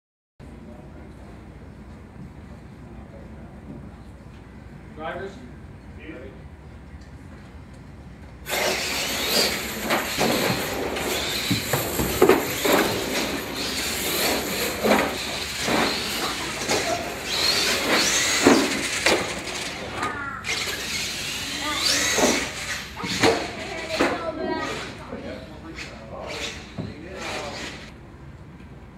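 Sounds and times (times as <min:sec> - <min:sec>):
rc truck motors whining: 0:08.5 - 0:27.9
trucks knocking and clattering: 0:09.2 - 0:17.1.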